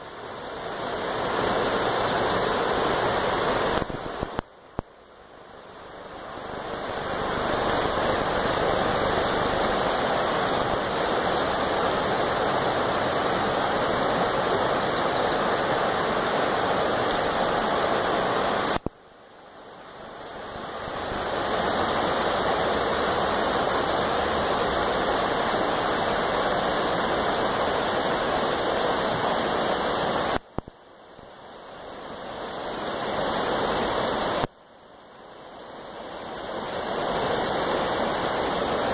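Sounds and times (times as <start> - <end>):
creek rippling over stones: 0.0 - 19.0.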